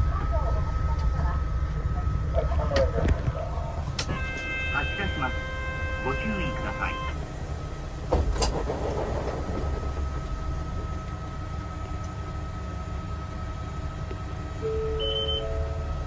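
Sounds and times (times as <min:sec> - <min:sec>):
bus diesel engine drone: 0:00.0 - 0:16.0
short electronic tones: 0:14.6 - 0:15.8.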